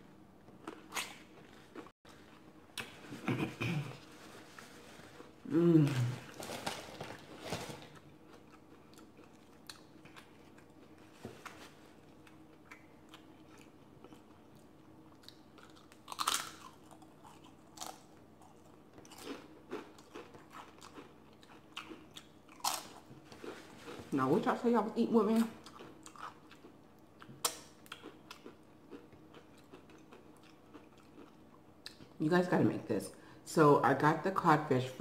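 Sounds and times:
chip bag crinkling: 6.2s - 8.0s
tortilla chips crunching: 15.1s - 24.2s.

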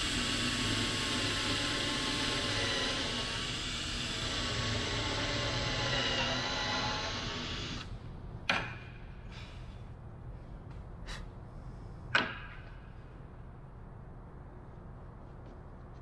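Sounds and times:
cordless drill boring wood: 0.0s - 7.9s.

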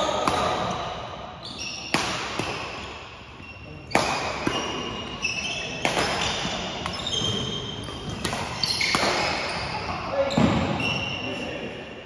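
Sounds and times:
sneakers squeaking on gym floor: 0.0s - 11.7s
rackets striking shuttlecock: 1.8s - 3.0s, 3.8s - 9.6s.

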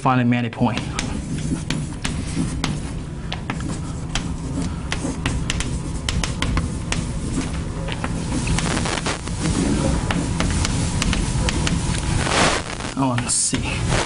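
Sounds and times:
low room hum: 0.0s - 14.0s
chalk tapping on board: 0.6s - 8.7s, 10.0s - 11.8s.

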